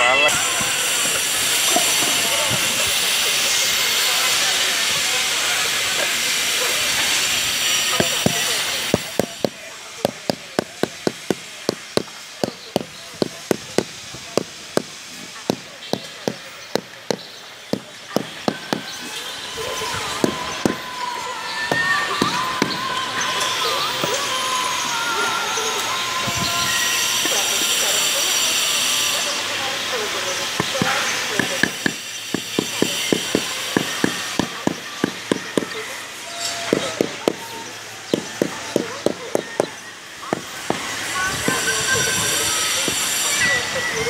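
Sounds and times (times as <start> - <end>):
hand tool tapping concrete tile: 8.0 - 19.0, 30.6 - 35.8.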